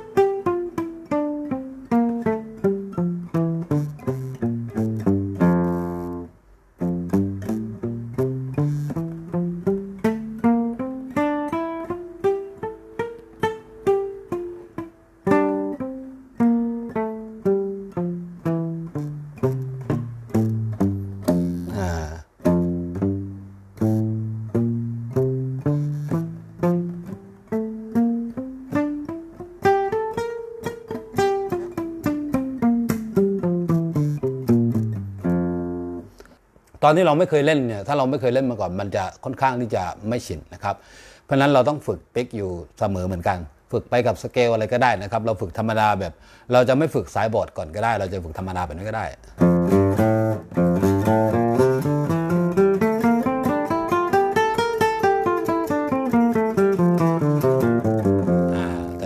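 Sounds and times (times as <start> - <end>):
classical guitar playing a scale: 0.0 - 36.3, 49.4 - 59.0
guitar string scrape: 8.6 - 9.2, 21.2 - 21.9.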